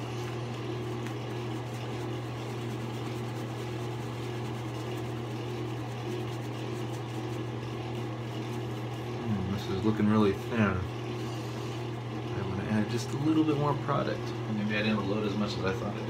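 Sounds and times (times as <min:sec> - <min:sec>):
shaving brush swishing lather: 0:00.0 - 0:14.0
low machine hum: 0:00.0 - 0:16.0.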